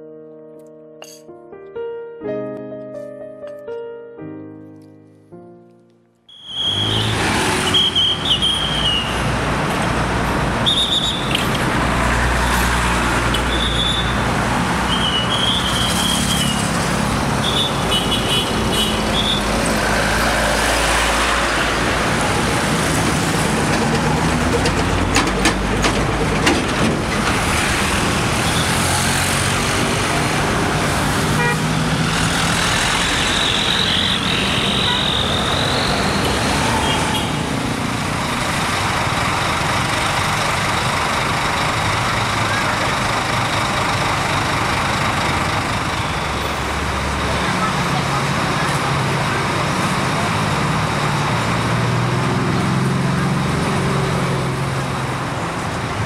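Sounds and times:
passing road traffic: 0:06.3 - 0:56.0
bus diesel engine pulling away: 0:18.5 - 0:56.0
high-pitched horn toots: 0:33.1 - 0:37.5.

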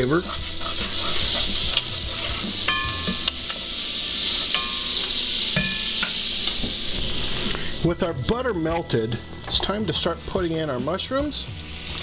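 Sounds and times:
butter sizzling in grease: 0:00.0 - 0:07.9, 0:09.6 - 0:12.0
spoon knocking against pan: 0:02.7 - 0:03.4, 0:04.5 - 0:06.8.

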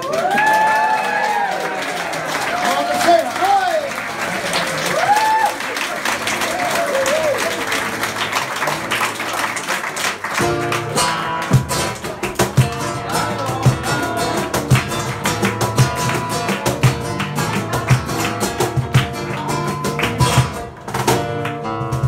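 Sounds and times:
applause: 0:00.0 - 0:21.7
flamenco guitar strumming: 0:10.4 - 0:22.0.

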